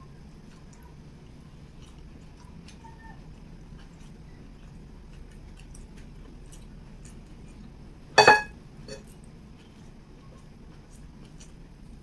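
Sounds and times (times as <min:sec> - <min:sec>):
mouth clicks while chewing: 0:09.0 - 0:12.0.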